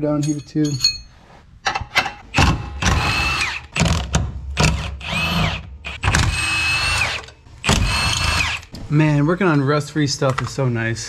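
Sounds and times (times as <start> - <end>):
impact wrench hammering: 2.3 - 8.6.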